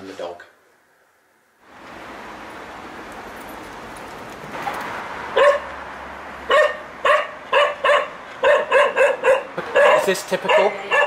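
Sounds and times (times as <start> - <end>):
dog barking: 5.4 - 5.7, 6.5 - 11.0.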